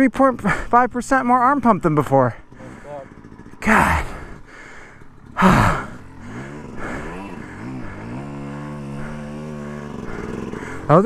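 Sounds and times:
dirt bike motor revving: 0.0s - 11.0s
breathy exhale: 2.6s - 3.3s, 4.0s - 10.9s.

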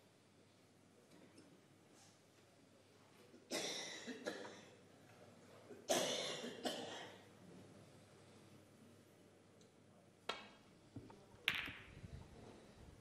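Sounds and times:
person coughing: 3.5s - 4.7s, 5.9s - 7.2s.

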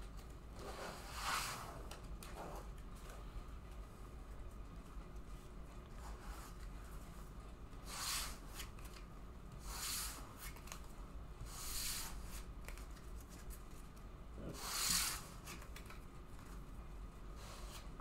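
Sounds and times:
cards sliding on table: 0.6s - 2.6s, 7.8s - 9.0s, 11.4s - 13.4s, 14.5s - 15.9s, 17.4s - 17.9s.

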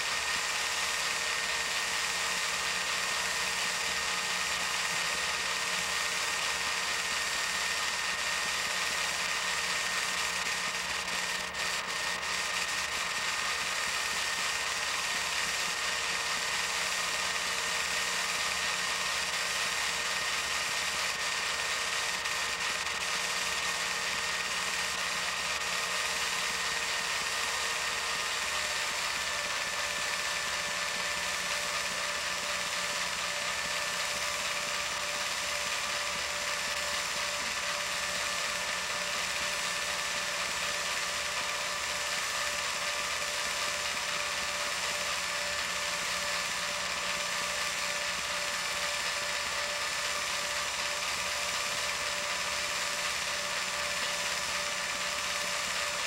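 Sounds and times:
film projector whirring: 0.0s - 56.0s.

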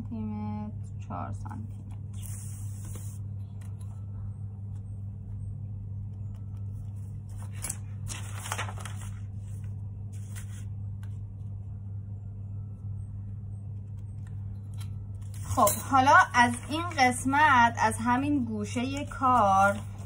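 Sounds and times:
steady low hum: 0.0s - 20.0s
paper rustling: 6.8s - 11.4s, 18.6s - 20.0s.

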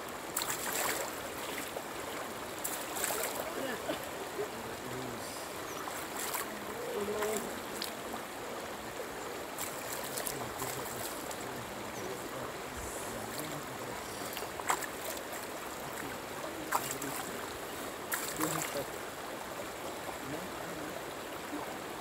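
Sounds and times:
river water flowing: 0.0s - 22.0s.

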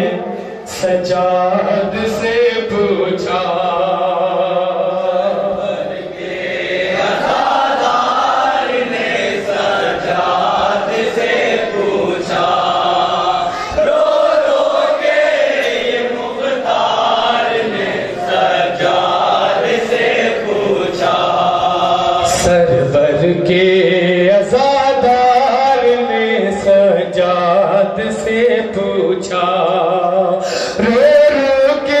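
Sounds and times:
men chanting together: 0.0s - 32.0s.

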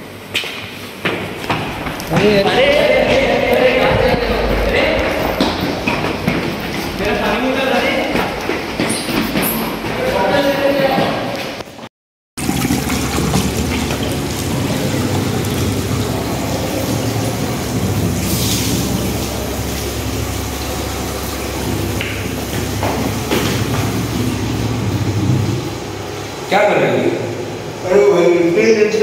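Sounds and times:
low hum: 1.7s - 8.6s, 12.4s - 26.5s
tap water running into basin: 12.4s - 25.8s.

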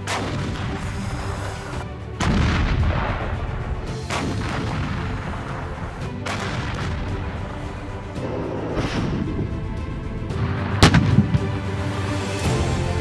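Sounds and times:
background music: 0.0s - 13.0s
artillery booms: 2.2s - 7.4s, 10.4s - 11.5s.

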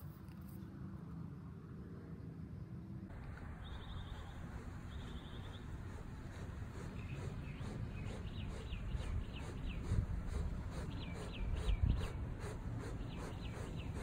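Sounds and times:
small bird chirping: 3.6s - 6.0s, 6.7s - 12.2s.

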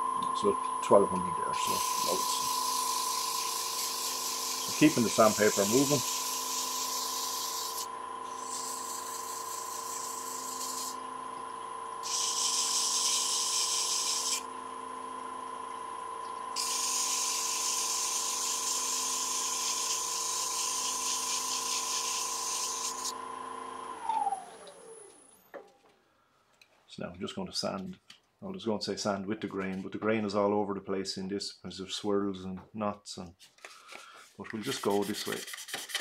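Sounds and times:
wood lathe motor whine: 0.0s - 25.6s
sandpaper hissing on spinning wood: 1.6s - 11.0s, 12.0s - 14.4s, 16.6s - 23.1s, 34.6s - 36.0s.

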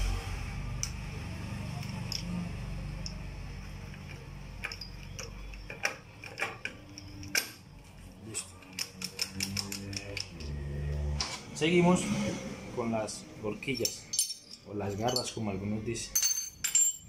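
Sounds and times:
metal gears clinking: 1.8s - 7.6s, 8.6s - 11.0s, 13.6s - 17.0s.

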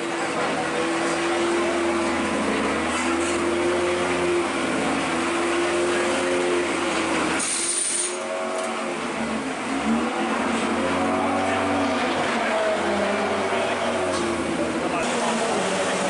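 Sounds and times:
short high hiss: 7.4s - 8.2s.

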